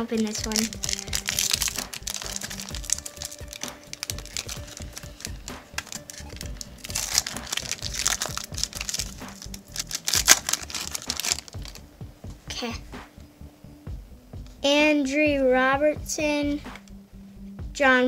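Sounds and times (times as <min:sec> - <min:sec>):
background music: 0:00.0 - 0:18.0
wrapper crinkling and tearing: 0:00.1 - 0:11.8.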